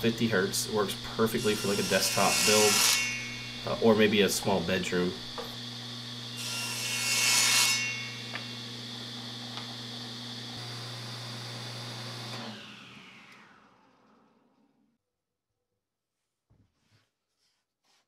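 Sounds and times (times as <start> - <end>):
table saw running: 0.0 - 14.5
saw blade cutting plywood: 0.8 - 4.9, 6.3 - 8.6
saw blade spinning down: 10.5 - 14.6.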